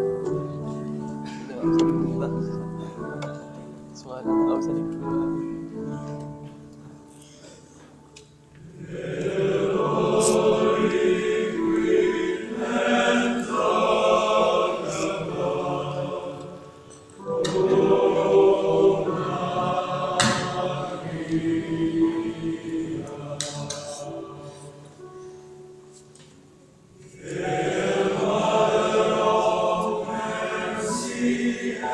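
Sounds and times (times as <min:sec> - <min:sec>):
choir singing a hymn: 0:08.6 - 0:25.9, 0:26.9 - 0:31.9.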